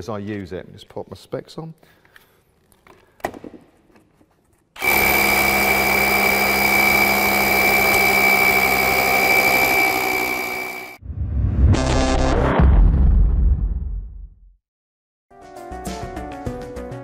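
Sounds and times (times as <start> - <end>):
rotary hammer drilling into concrete: 4.8 - 11.0.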